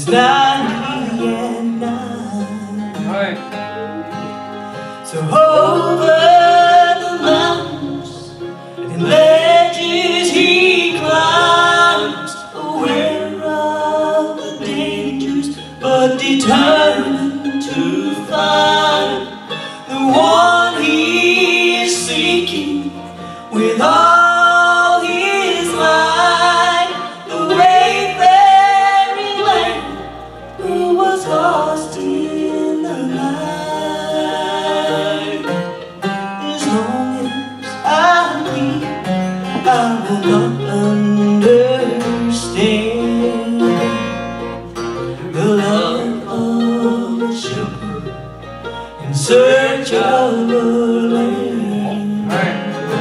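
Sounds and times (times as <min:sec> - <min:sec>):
woman singing: 0:00.0 - 0:03.4, 0:05.0 - 0:35.7, 0:36.4 - 0:44.0
acoustic guitar: 0:00.0 - 0:53.0
mandolin: 0:00.0 - 0:53.0.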